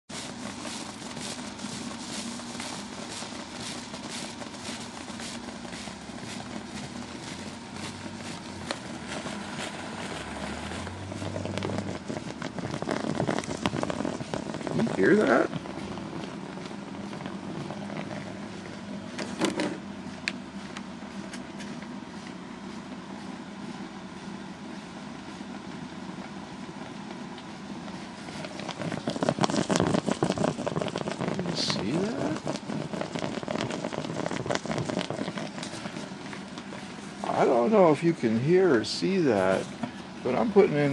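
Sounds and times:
water boiling with crackling: 0:00.0 - 0:40.9.

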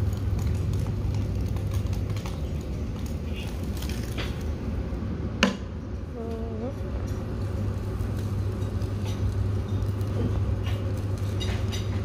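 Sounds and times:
steady low hum: 0:00.0 - 0:12.0
person humming: 0:06.1 - 0:06.9.

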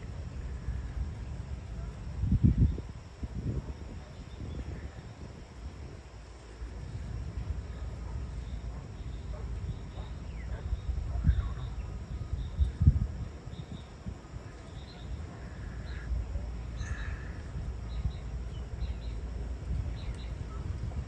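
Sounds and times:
insects chirping: 0:00.0 - 0:21.0
wind buffeting microphone: 0:00.0 - 0:21.0.

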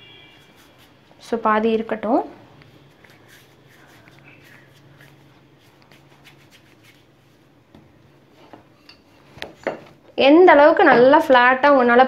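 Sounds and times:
low steady hum: 0:00.0 - 0:12.0
hands rubbing and patting dough: 0:00.3 - 0:01.4, 0:02.6 - 0:09.6.

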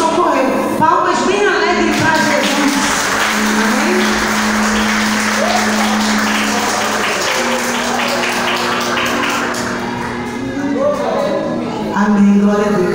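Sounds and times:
live music long held notes: 0:01.6 - 0:12.9
people applauding: 0:01.9 - 0:11.4.

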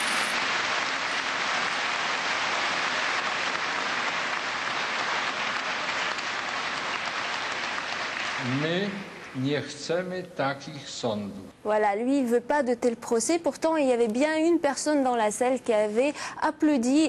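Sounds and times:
crowd applauding: 0:00.0 - 0:09.6.

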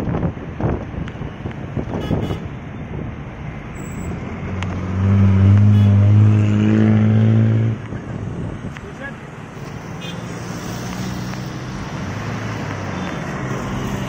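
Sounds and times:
road and wind noise from vehicle: 0:00.0 - 0:14.0.

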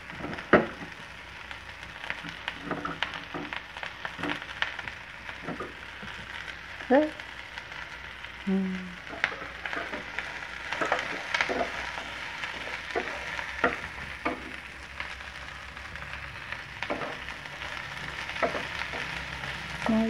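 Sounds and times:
vegetables sizzling in oil: 0:00.0 - 0:20.0
spatula scraping and tapping pan: 0:09.1 - 0:14.7, 0:16.8 - 0:17.3, 0:18.2 - 0:19.2.

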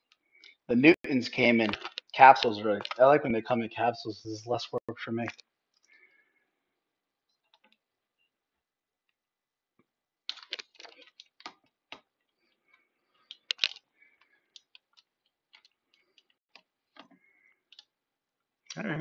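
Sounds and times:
handling clicks and taps: 0:01.6 - 0:03.1.

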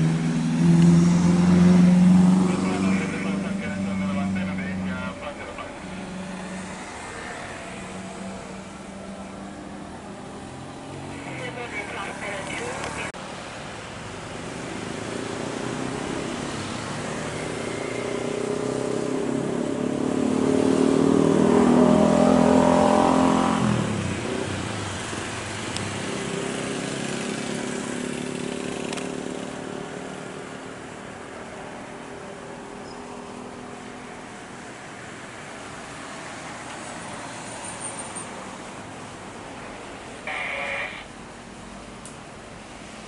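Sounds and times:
vehicle engine passing by: 0:00.0 - 0:13.1, 0:14.8 - 0:30.5
traffic noise: 0:00.0 - 0:43.0.

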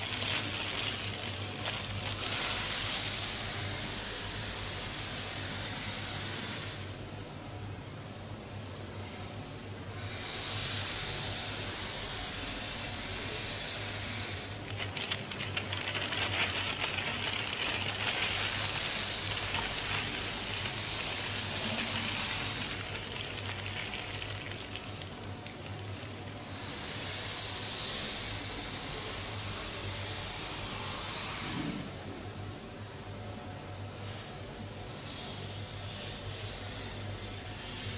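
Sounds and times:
scratchy crackling: 0:00.0 - 0:02.6, 0:14.6 - 0:26.4.

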